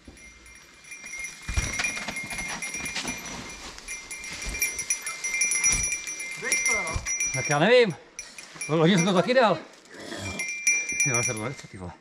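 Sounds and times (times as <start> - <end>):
heavy thumps: 0.0 - 7.6
bike rattling over rocks: 0.1 - 7.4.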